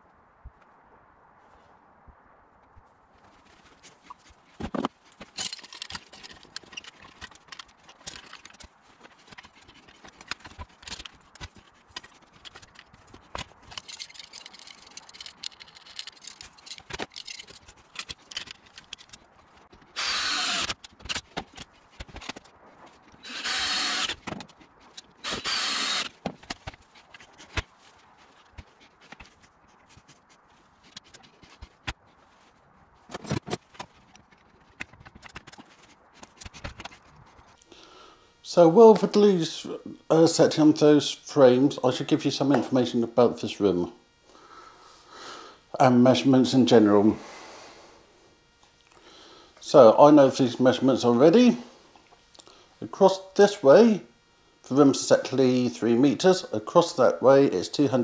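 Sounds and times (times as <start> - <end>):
cordless drill running: 19.9 - 20.8, 23.2 - 24.3, 25.0 - 26.3.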